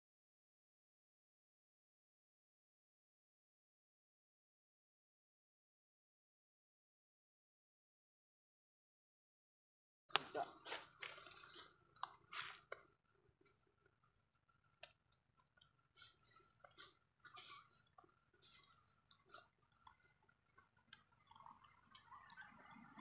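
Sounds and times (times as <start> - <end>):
dry leaves crackling: 10.1 - 12.8, 16.0 - 19.4
monkey chewing: 15.4 - 22.7.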